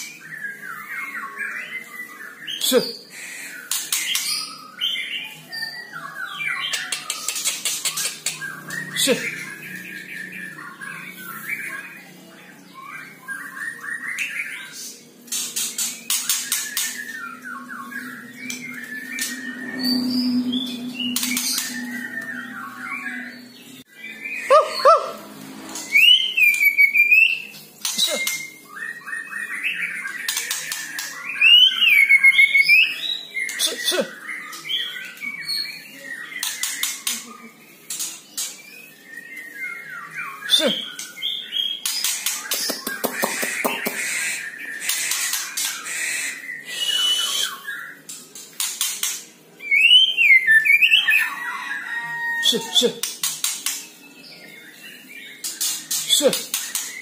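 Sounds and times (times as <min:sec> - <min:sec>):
bird harsh chattering calls: 0:06.4 - 0:12.0, 0:39.8 - 0:53.9
bird chirping whistled notes: 0:45.8 - 0:48.0.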